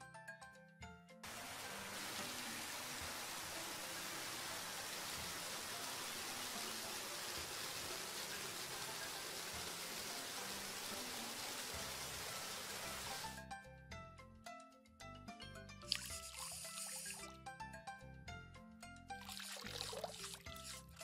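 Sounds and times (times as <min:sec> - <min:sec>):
hose spraying water: 0:01.2 - 0:13.4, 0:15.9 - 0:17.3, 0:19.2 - 0:21.0.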